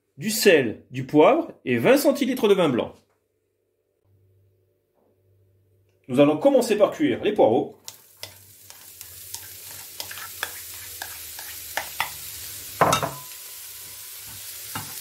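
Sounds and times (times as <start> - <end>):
leeks sizzling in a pan: 7.8 - 15.0
spatula scraping a pan: 7.9 - 12.6.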